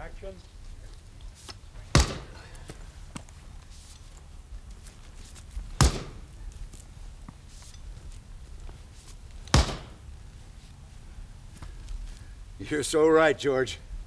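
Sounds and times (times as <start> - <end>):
axe chopping log: 1.9 - 2.4, 5.8 - 6.2, 9.5 - 10.0.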